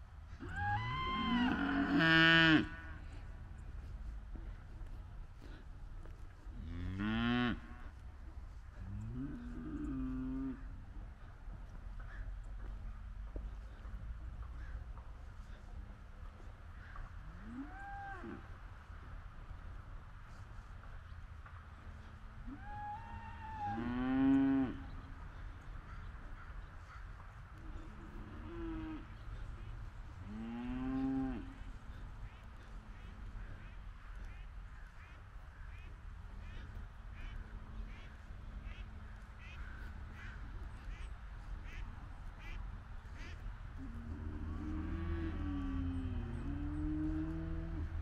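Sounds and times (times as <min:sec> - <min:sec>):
cow mooing: 0:00.5 - 0:03.0
duck quacking: 0:37.2 - 0:43.4.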